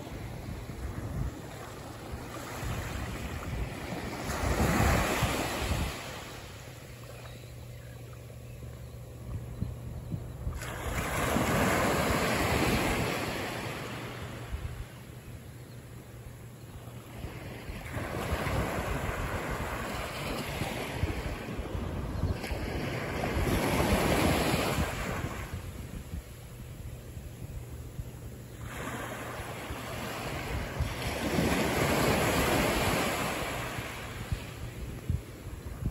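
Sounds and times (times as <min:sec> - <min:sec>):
small waves breaking on shore: 0:00.0 - 0:07.4, 0:10.5 - 0:15.0, 0:17.0 - 0:25.9, 0:28.4 - 0:35.9.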